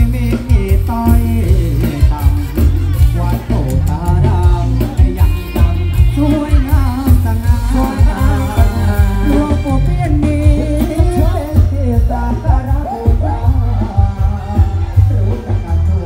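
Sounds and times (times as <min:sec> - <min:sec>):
band music over loudspeakers: 0:00.0 - 0:16.0
heavy bass beat: 0:00.0 - 0:16.0
lead singer singing: 0:00.0 - 0:16.0.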